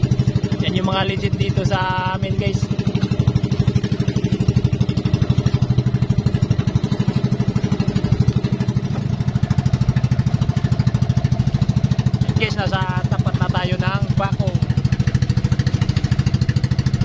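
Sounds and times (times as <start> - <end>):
boat engine pulsing: 0.0 - 17.0.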